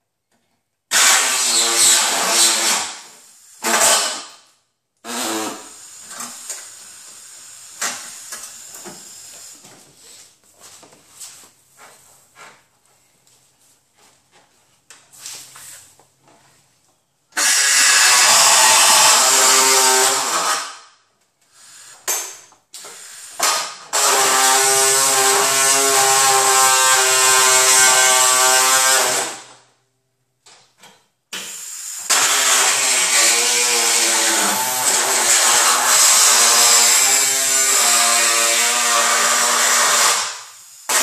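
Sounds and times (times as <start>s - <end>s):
reciprocating saw cutting sheet metal: 0.9s - 4.4s, 5.0s - 8.7s, 17.4s - 20.8s, 23.0s - 29.5s, 31.4s - 41.0s.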